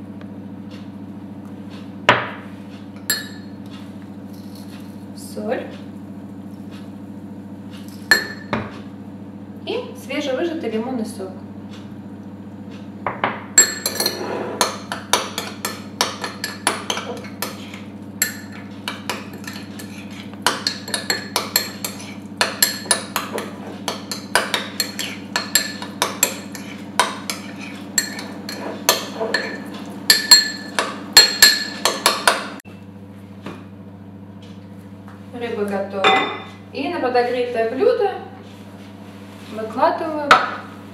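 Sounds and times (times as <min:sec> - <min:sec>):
steady low hum: 0:00.0 - 0:40.9
spoon clinking in ceramic bowl: 0:03.0 - 0:03.5, 0:08.1 - 0:08.6, 0:13.6 - 0:32.4.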